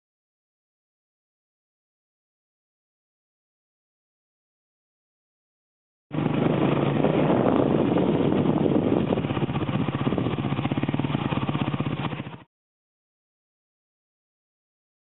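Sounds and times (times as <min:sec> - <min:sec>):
engine running: 0:06.1 - 0:12.5.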